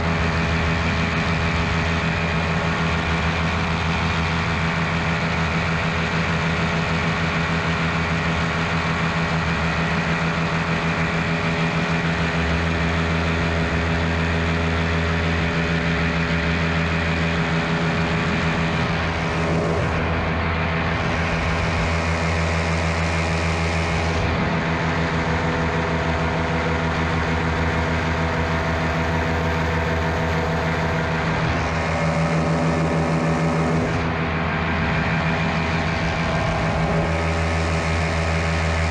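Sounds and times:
paramotor engine and propeller running: 0.0s - 38.9s.

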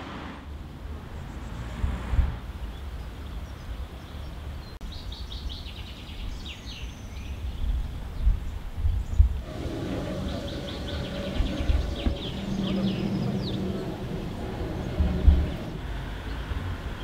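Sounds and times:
songbird chirping: 2.4s - 17.0s
low gusty rumble: 7.5s - 17.0s.

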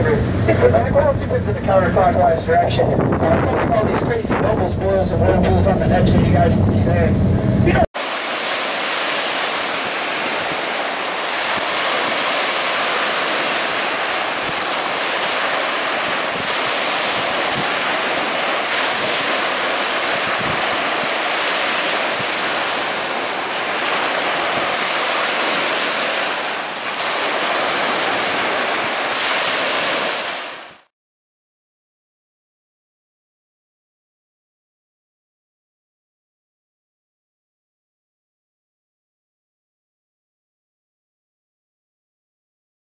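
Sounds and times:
wind buffeting microphone: 0.0s - 7.8s, 8.4s - 25.8s
rushing whitewater rapids: 8.0s - 30.8s.

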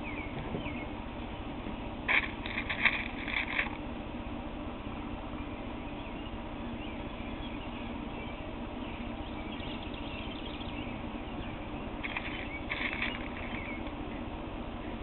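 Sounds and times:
bird chirps: 0.0s - 1.0s, 5.3s - 15.0s
outdoor background noise: 0.0s - 15.0s.

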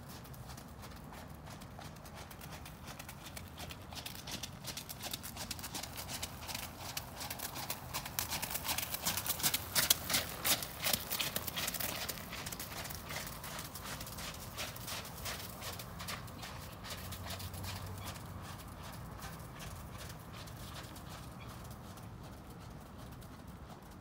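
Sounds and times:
horse hoofbeats on wet gravel: 0.0s - 24.0s.

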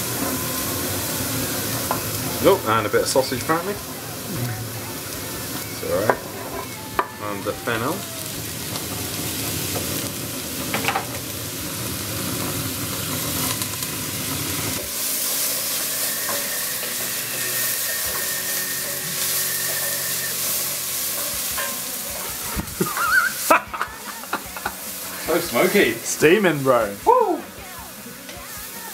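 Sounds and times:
food sizzling in a pot: 0.0s - 28.9s
spoon stirring in a pot: 14.7s - 22.4s.

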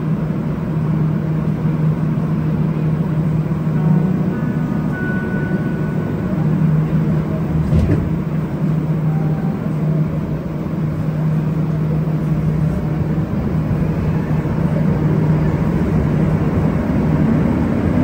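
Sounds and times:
train low hum: 0.0s - 18.0s
faint brief tone: 3.7s - 6.9s, 9.0s - 9.7s.

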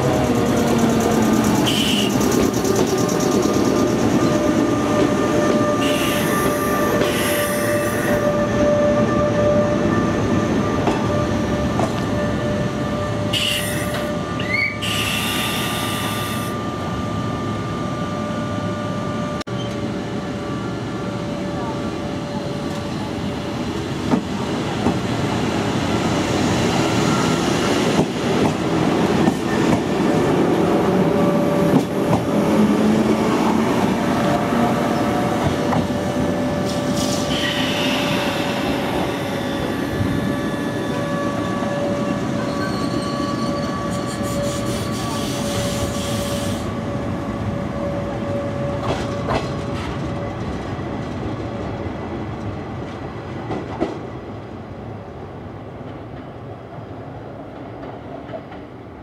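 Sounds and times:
electric train running on track: 0.0s - 59.0s
high wheel squeal: 36.7s - 46.7s.

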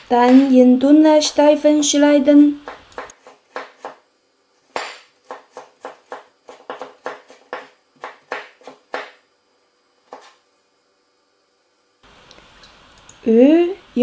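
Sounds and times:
cleaver chopping on wooden board: 2.6s - 4.0s, 4.7s - 9.2s.

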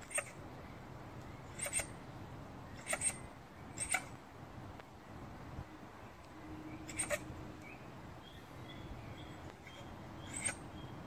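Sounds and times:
badger squeaking: 0.0s - 0.4s, 1.5s - 1.9s, 2.8s - 3.2s, 3.8s - 4.1s, 6.9s - 7.2s, 9.6s - 10.6s.

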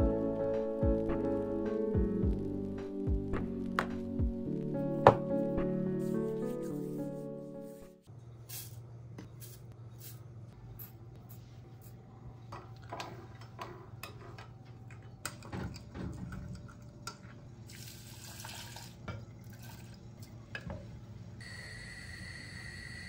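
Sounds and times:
liquid being poured: 17.6s - 20.0s.

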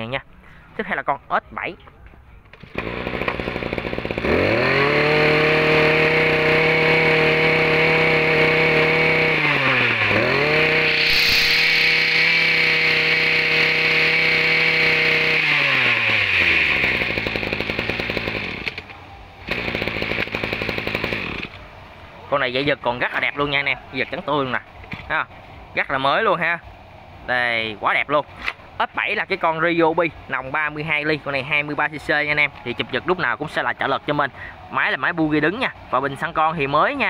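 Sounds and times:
recoil starter cord pulled: 2.5s - 18.9s, 19.5s - 21.6s
brush cutter engine revving: 2.5s - 21.6s.

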